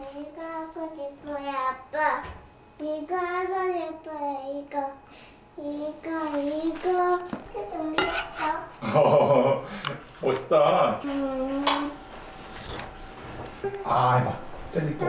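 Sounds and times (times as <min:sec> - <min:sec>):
young child singing: 0:00.0 - 0:05.0, 0:05.6 - 0:08.7.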